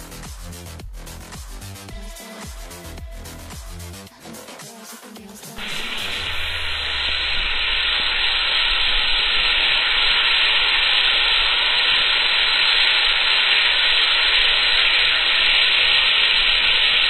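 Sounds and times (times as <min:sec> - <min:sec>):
fizzing liquid jetting from bottle: 0:05.6 - 0:17.0.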